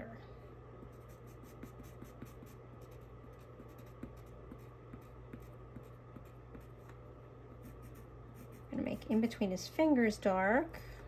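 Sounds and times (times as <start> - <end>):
pencil scratching on paper: 0.9 - 6.7, 7.6 - 9.2.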